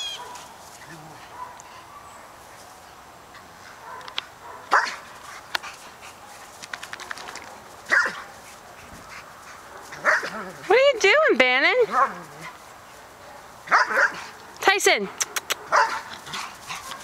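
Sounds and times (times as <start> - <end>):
dogs barking: 0.1 - 0.6, 1.3 - 2.1, 3.8 - 5.1, 7.5 - 8.3, 9.0 - 10.6, 13.2 - 14.3, 15.2 - 17.0.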